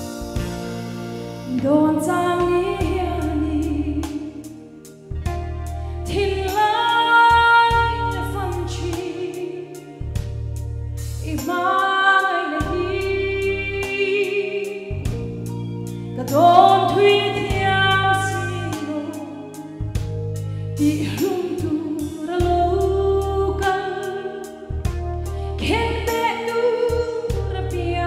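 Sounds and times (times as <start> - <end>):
accompaniment with beat and bass: 0.0 - 6.6, 24.7 - 27.8
woman singing into a microphone: 1.5 - 4.7, 5.8 - 10.1, 11.2 - 19.9, 20.8 - 28.0.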